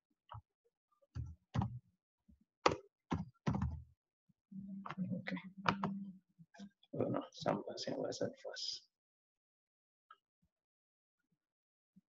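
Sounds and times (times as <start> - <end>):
keyboard keystrokes: 2.7 - 3.8.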